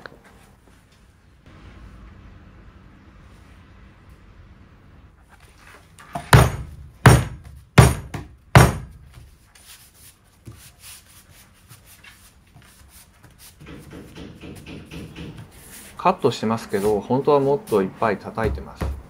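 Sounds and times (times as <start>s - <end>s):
fist thumping on linoleum: 6.2s - 9.2s
hands rubbing over sheet: 9.4s - 13.6s.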